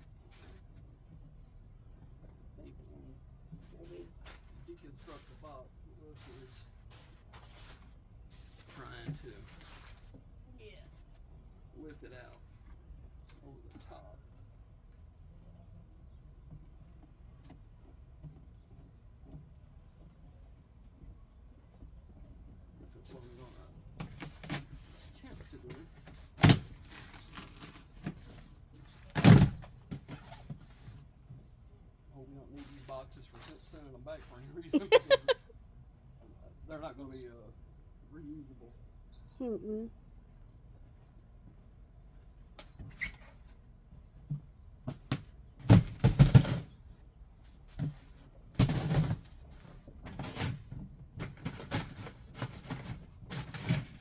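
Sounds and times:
loud cardboard bumps: 23.1s - 31.0s, 44.2s - 54.0s
loud bursts of cardboard noise: 44.9s - 46.9s, 47.7s - 54.0s.

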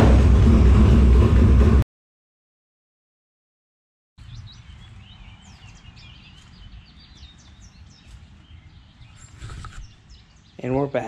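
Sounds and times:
low outdoor rumble: 0.0s - 1.8s
small birds chirping: 4.2s - 11.0s.

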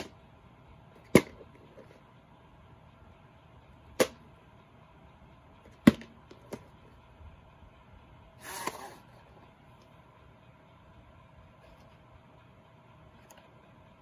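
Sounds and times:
cassette scraping out of sleeve: 8.4s - 9.2s.

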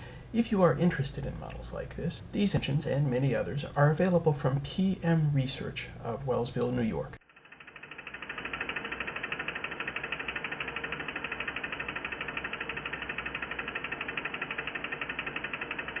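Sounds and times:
model engine pistons clicking: 6.6s - 16.0s.

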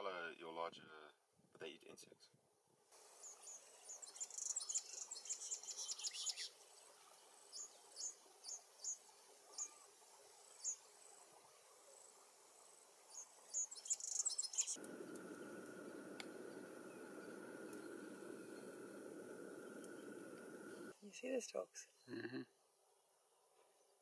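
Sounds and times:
low hiss: 2.8s - 21.6s
faint hum: 14.8s - 20.9s
thin high whine: 14.8s - 20.9s.

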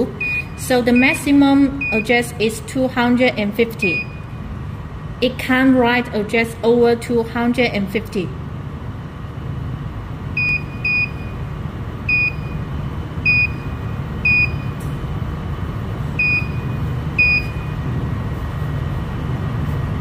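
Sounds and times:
steady low hum: 0.0s - 20.0s
short high key beeps: 0.2s - 2.2s, 16.2s - 17.8s.

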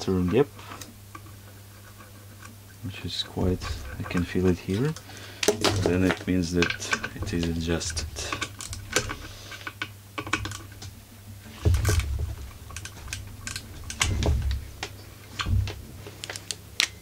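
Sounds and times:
dull thumps: 3.3s - 16.2s
chainsaw parts clicking and tapping: 3.8s - 10.9s.

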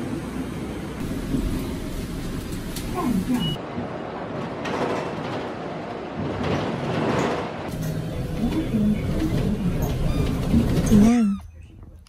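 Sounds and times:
traffic on wet street: 0.0s - 4.7s
bus rumbling in motion: 0.0s - 12.0s.

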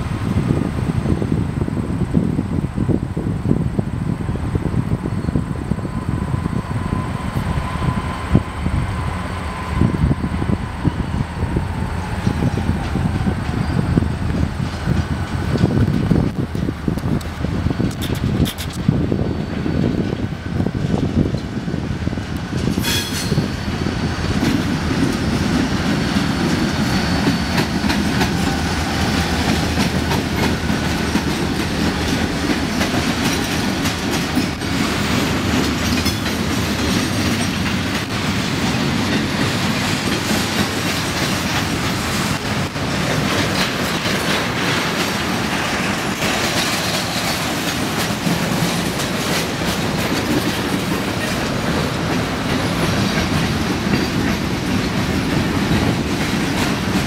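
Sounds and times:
wheels clattering over rail joints: 12.1s - 21.7s, 24.3s - 57.0s.

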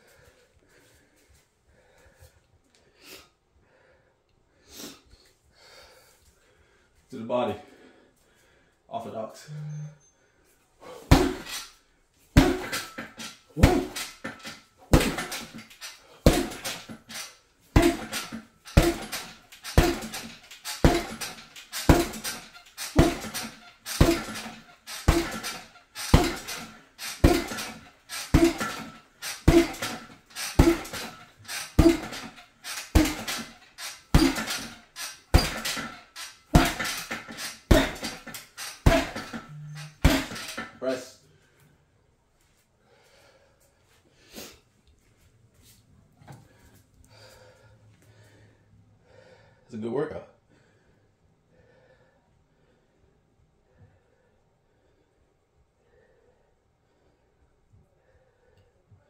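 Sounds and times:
punches thudding on a heavy bag: 10.9s - 11.6s, 12.3s - 40.8s.

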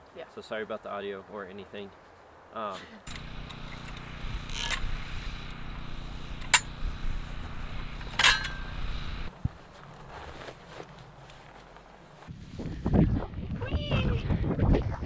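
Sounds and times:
farm jack metal clanks: 3.1s - 9.3s
low mechanical hum: 3.1s - 12.3s.

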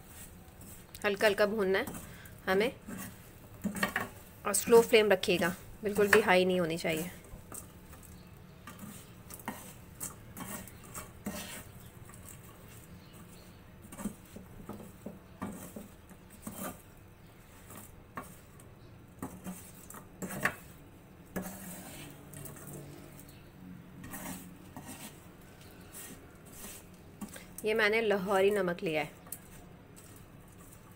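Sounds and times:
metal skimmer scraping a wok: 8.7s - 16.9s, 19.2s - 23.3s, 24.0s - 27.6s.

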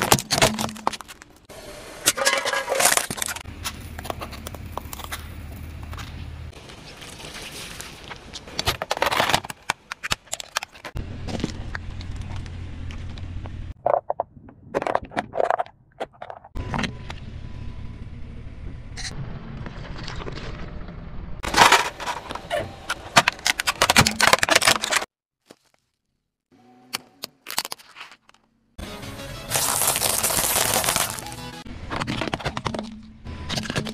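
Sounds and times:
plastic cracking under tyre: 2.8s - 12.5s, 29.5s - 33.9s.

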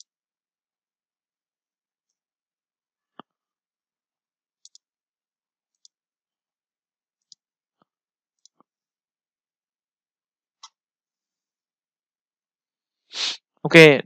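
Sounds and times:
computer mouse clicks: 4.6s - 4.9s, 5.7s - 6.0s, 7.2s - 7.4s, 8.4s - 8.7s.

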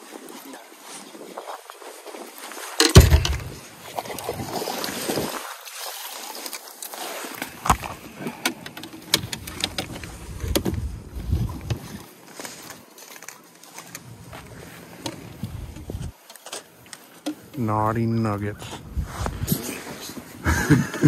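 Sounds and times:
knocks and thumps on boat: 2.8s - 4.4s, 7.6s - 12.0s.

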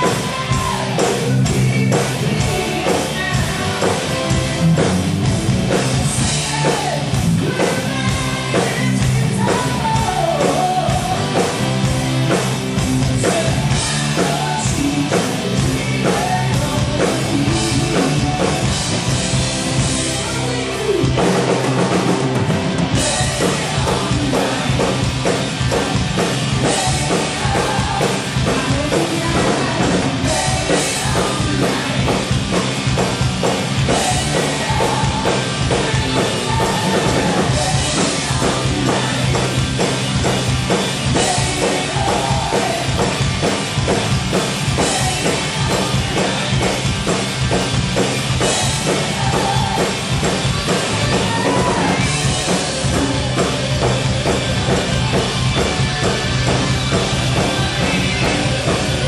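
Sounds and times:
bass guitar: 0.0s - 59.0s
drum kit beating: 0.0s - 59.0s
electric guitars: 0.0s - 59.0s
woman singing: 26.7s - 32.1s.

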